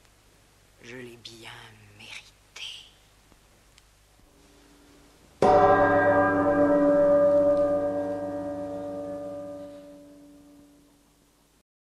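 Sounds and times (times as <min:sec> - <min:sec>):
deep bell stroke: 0:05.4 - 0:10.9.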